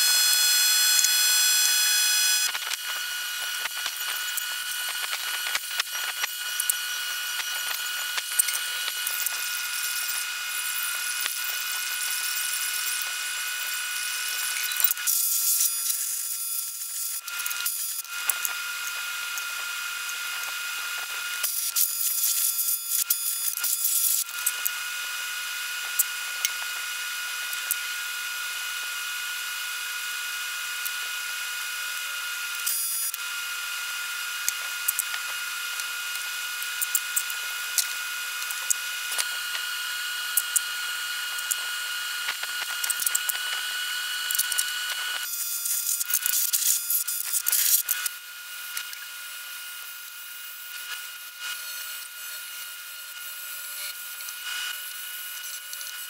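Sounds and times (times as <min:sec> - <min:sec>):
pressure washer motor whine: 0:00.0 - 0:15.2.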